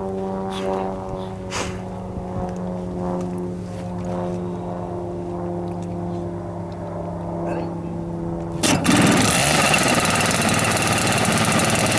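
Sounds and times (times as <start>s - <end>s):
model aircraft engine idling: 8.6s - 11.9s.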